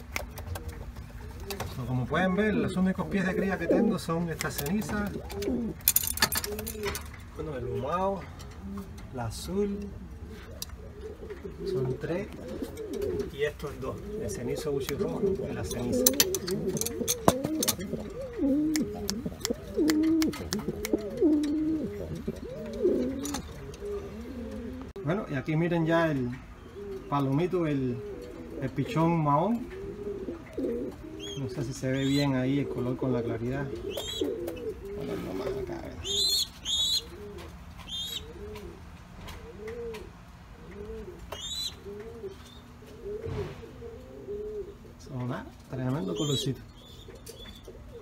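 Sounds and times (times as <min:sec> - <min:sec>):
pigeons cooing: 0:00.0 - 0:48.0
sharp clicks: 0:16.0 - 0:21.6.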